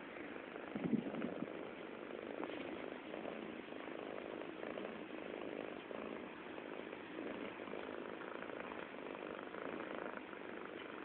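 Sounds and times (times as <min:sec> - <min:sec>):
cat purring: 0:00.0 - 0:11.0.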